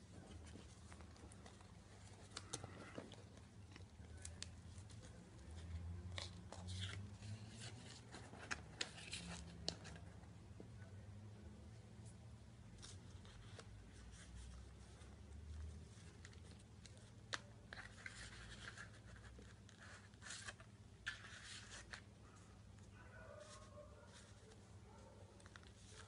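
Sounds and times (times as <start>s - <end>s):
cardstock pages rustling: 0.0s - 10.2s, 12.8s - 22.1s.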